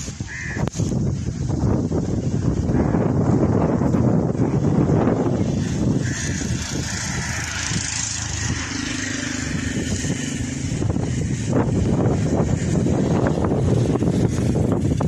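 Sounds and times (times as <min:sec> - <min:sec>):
wind rumbling on microphone: 0:00.0 - 0:15.0
vehicle driving past: 0:05.0 - 0:14.3.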